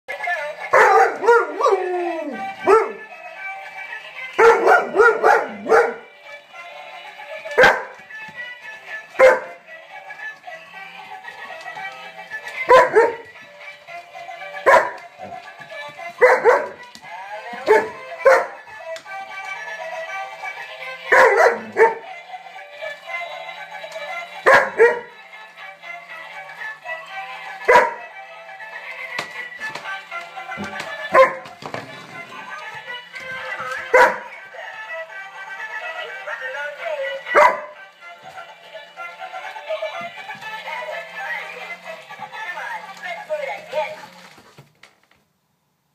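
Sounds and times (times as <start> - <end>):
music: 0.1 - 45.1
dog barking: 0.7 - 1.7, 2.6 - 3.0, 4.4 - 6.0, 7.6 - 7.9, 9.2 - 9.6, 12.7 - 13.2, 14.7 - 15.0, 16.2 - 16.8, 17.7 - 18.6, 21.1 - 22.0, 24.5 - 25.1, 27.7 - 28.0, 31.1 - 31.4, 33.9 - 34.3, 37.4 - 37.7.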